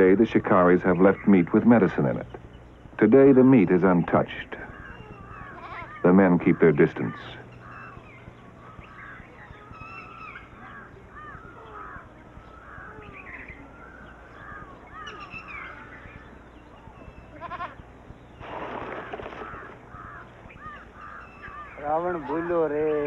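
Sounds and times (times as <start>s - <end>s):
birds chirping: 0.0s - 23.0s
faint low hum: 0.0s - 23.0s
goat bleating: 5.1s - 6.0s, 17.3s - 17.8s.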